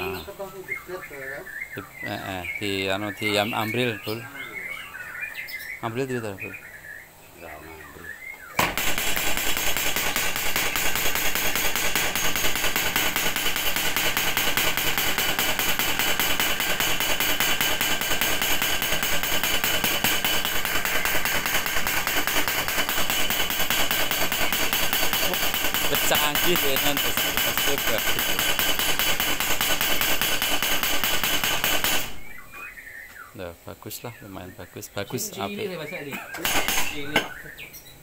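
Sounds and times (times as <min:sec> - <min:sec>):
power hammer striking steel: 0:08.6 - 0:32.4, 0:36.4 - 0:37.4.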